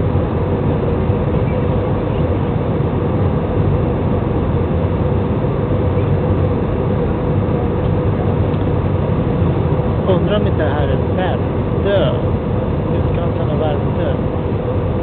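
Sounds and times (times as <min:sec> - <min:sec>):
jet engines droning: 0:00.0 - 0:15.0.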